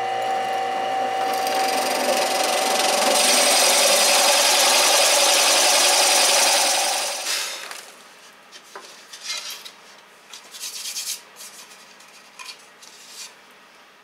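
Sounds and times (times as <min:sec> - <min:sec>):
drill press motor running down: 0:00.0 - 0:07.9.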